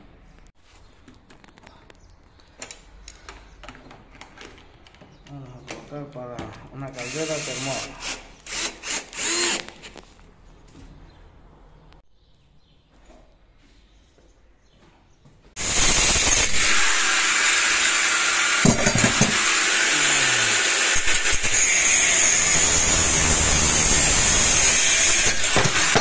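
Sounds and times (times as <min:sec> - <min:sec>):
angle grinder cutting metal pipes: 0:15.6 - 0:26.0.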